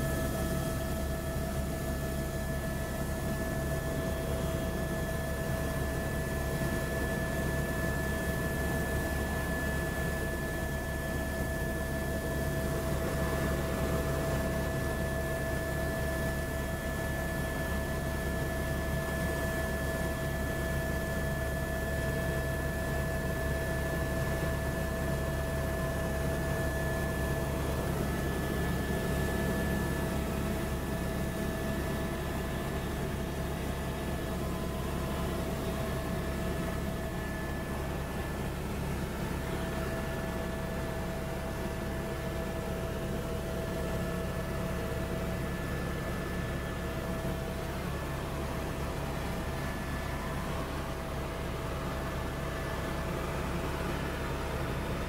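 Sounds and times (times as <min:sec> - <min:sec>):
helicopter cabin rumble: 0:00.0 - 0:22.1, 0:22.8 - 0:43.9.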